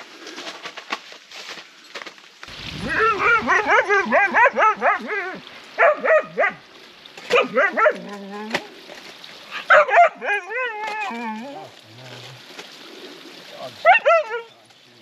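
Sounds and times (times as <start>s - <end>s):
dog yipping and whining: 2.9s - 6.6s, 7.3s - 8.5s.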